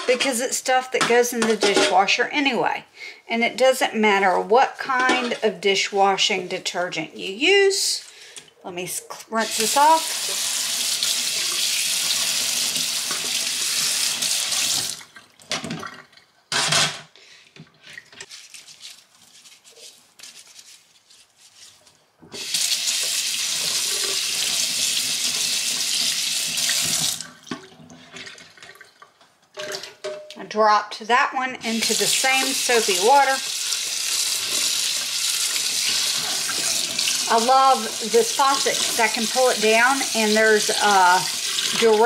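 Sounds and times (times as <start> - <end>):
faucet water splashing on plastic: 31.7 - 42.0.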